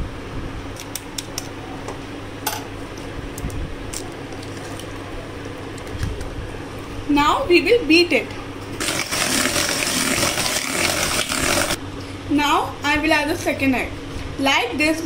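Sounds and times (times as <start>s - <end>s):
steady low hum: 0.0s - 10.3s.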